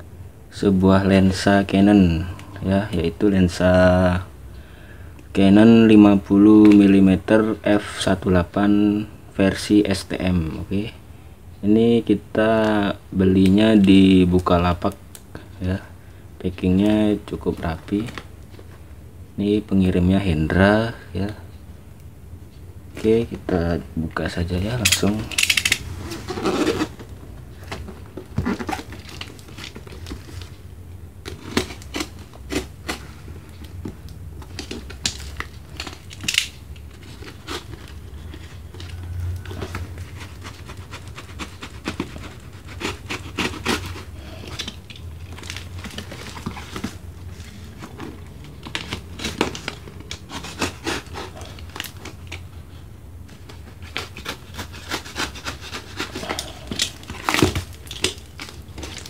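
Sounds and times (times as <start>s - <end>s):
plastic crinkling: 24.4s - 59.0s
knife cutting packing tape: 31.3s - 33.0s, 34.5s - 47.0s, 48.6s - 52.4s, 53.5s - 59.0s.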